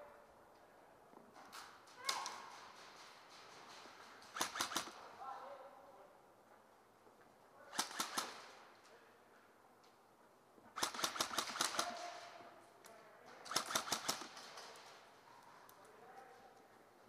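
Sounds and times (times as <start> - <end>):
airsoft guns firing bursts: 2.3 - 5.0, 7.7 - 8.7, 10.8 - 12.4, 13.4 - 15.0.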